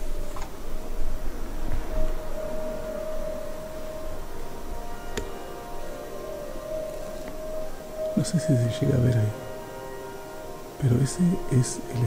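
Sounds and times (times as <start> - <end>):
held musical tone: 0.0 - 12.0.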